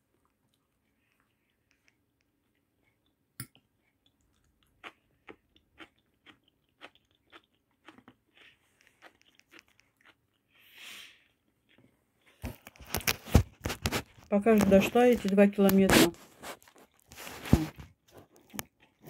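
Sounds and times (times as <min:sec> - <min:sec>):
person chewing food: 0:00.0 - 0:14.6, 0:16.2 - 0:19.0.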